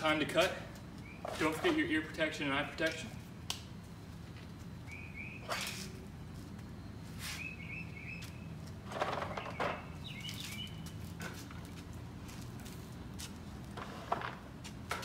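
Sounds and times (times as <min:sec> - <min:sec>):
songbird chirping: 0:01.0 - 0:01.8, 0:04.6 - 0:11.0.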